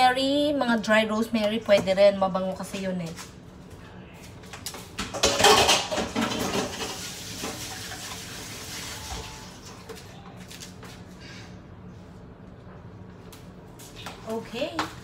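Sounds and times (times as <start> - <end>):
dishes and utensils clattering: 5.0 - 8.2.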